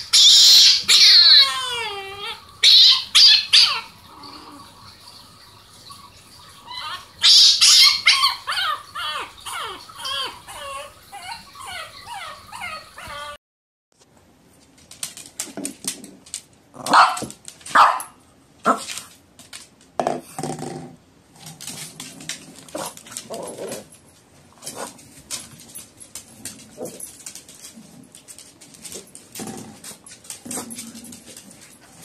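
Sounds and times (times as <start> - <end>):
puppy growling: 0.5 - 4.8, 8.1 - 13.4, 20.4 - 23.9, 29.4 - 31.5
puppy barking: 16.9 - 18.8.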